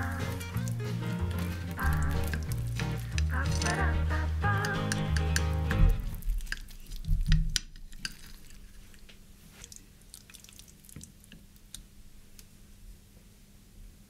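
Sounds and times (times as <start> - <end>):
dull thumps: 0.0 - 7.6.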